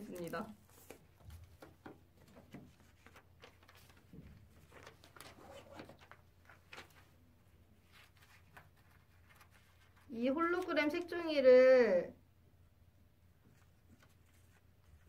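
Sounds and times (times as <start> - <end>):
paper rustling and tapping: 0.0 - 7.1.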